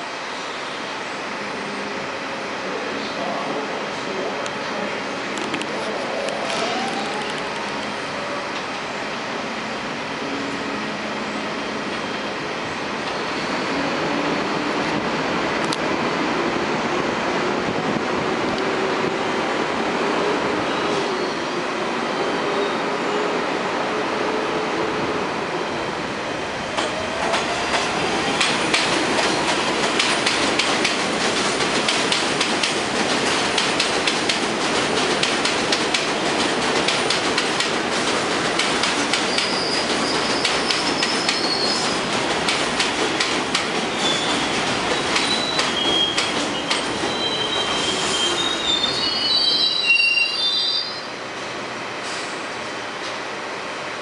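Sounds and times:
subway train running: 0.0 - 54.0
wheels clicking over rail joints: 26.8 - 47.0
wheel squeals: 39.2 - 42.0, 43.9 - 51.1.

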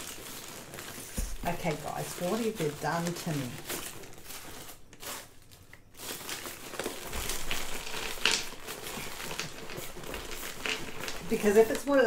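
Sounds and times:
wrapping rustling and crackling: 0.0 - 12.0.

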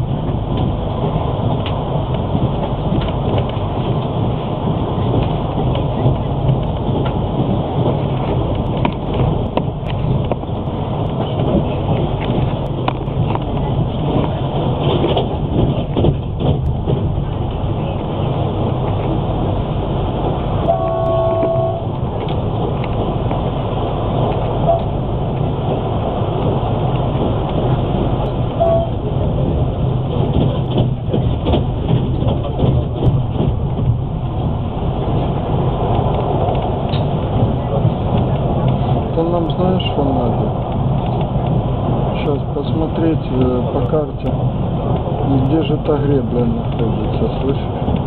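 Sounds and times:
train wheels rumbling on rails: 0.0 - 48.0
sharp clicks and rattles: 0.2 - 20.3, 29.4 - 48.0
short faint tone: 20.7 - 21.9.

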